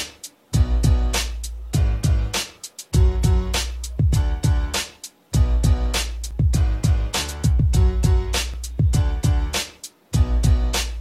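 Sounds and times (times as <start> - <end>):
sharp snare strikes: 0.0 - 0.3, 2.4 - 3.0, 4.8 - 5.2, 9.6 - 10.0
deep bass drum hits: 5.4 - 9.5.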